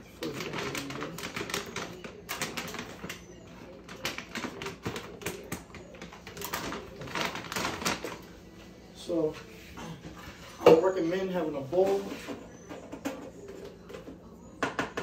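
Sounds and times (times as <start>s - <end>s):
plastic bag crinkling: 0.2s - 3.2s, 3.9s - 8.2s.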